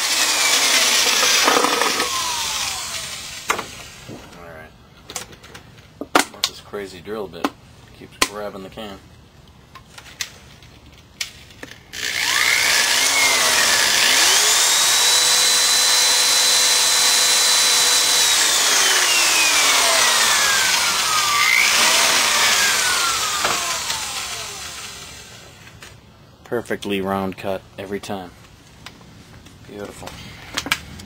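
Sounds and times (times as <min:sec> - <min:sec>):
electric drill motor whine: 0:00.0 - 0:04.2, 0:11.9 - 0:25.6.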